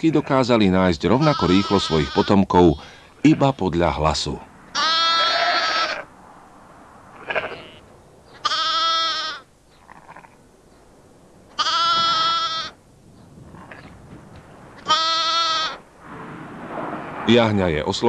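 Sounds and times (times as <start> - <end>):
sheep bleating: 1.2 - 2.5, 4.7 - 6.1, 7.2 - 10.4, 11.6 - 12.8, 14.8 - 15.8.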